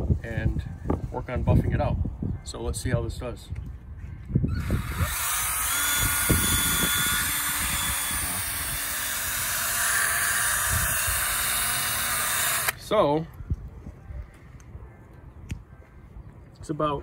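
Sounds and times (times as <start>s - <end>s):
cordless drill buffing whir: 4.5s - 12.8s.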